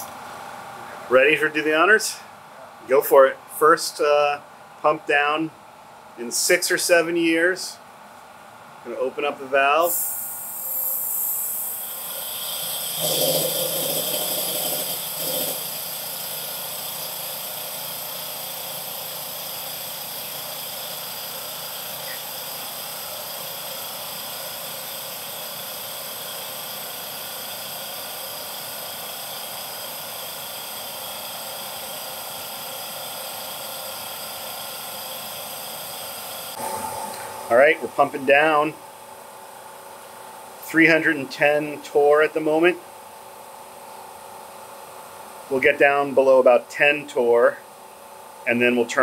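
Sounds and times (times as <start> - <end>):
air rushing in with hiss: 9.8 - 12.9
vacuum pump whining: 9.8 - 38.8.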